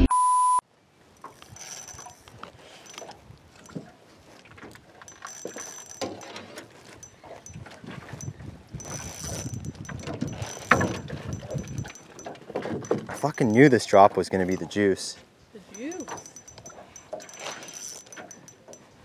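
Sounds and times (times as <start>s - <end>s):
fishing reel clicking: 1.2s - 3.8s, 5.0s - 13.6s, 15.7s - 18.9s
handling noise: 1.2s - 15.0s, 15.7s - 19.0s.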